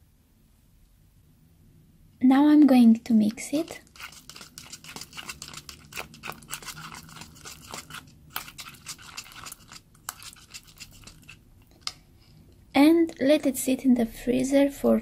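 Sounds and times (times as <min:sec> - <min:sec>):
spoon stirring thick gel: 0:03.1 - 0:13.8
wet squishing and clicking: 0:03.6 - 0:13.2.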